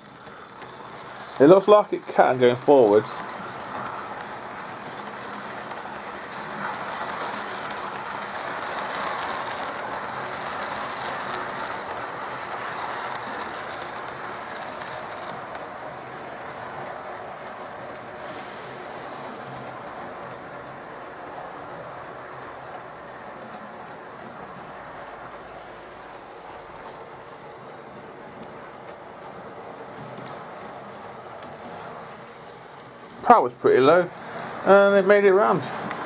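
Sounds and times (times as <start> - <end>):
model train motor whirr: 0.0 - 27.0
faint clicks: 28.4 - 28.6, 29.9 - 30.4.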